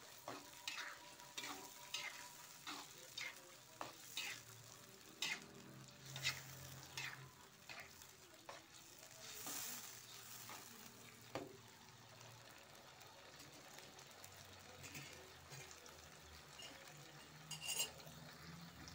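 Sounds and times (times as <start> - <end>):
metal spatula scraping: 0.0 - 10.9, 14.8 - 15.8, 16.5 - 18.1
food sizzling in a wok: 0.0 - 18.9.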